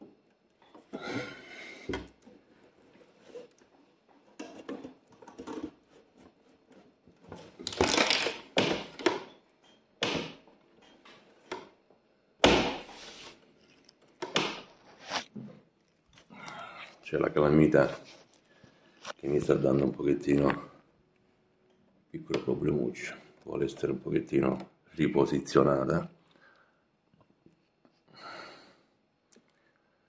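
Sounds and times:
hoses rustling and scraping: 0:02.2 - 0:07.7, 0:12.9 - 0:14.0.

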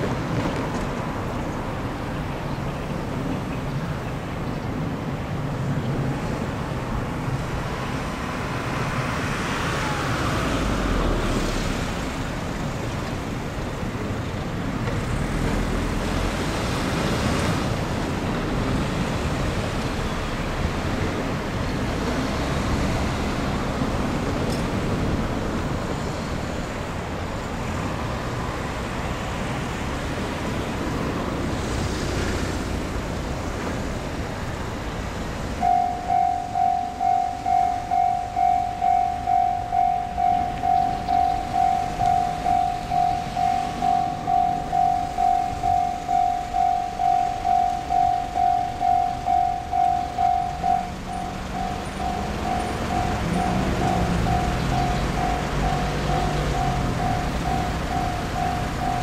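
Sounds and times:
diesel railcar rumbling: 0:00.0 - 0:59.0
level crossing bell ringing: 0:35.6 - 0:59.0.

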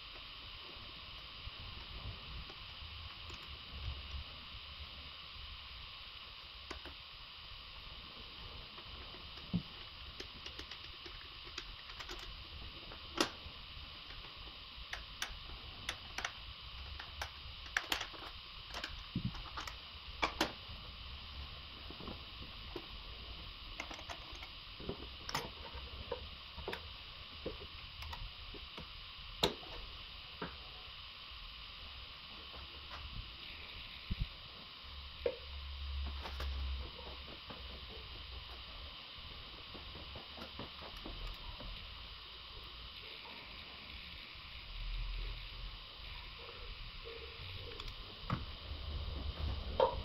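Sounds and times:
faint steady hiss: 0:00.0 - 0:50.0
plastic and metal parts clicking: 0:14.9 - 0:20.5.

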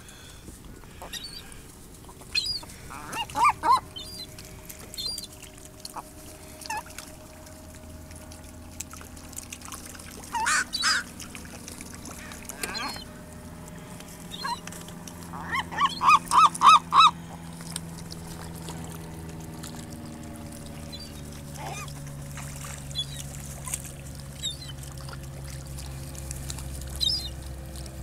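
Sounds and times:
steady low hum: 0:00.0 - 0:28.0
gull calling: 0:00.8 - 0:07.0, 0:10.2 - 0:11.2, 0:12.0 - 0:13.2, 0:14.2 - 0:17.5, 0:20.8 - 0:22.0, 0:22.9 - 0:24.8, 0:27.0 - 0:27.3.

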